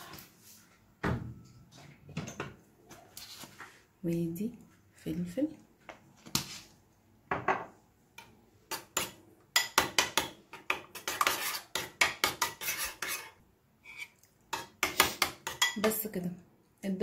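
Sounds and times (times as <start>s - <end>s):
metal spoon stirring in a bowl: 8.7s - 16.0s.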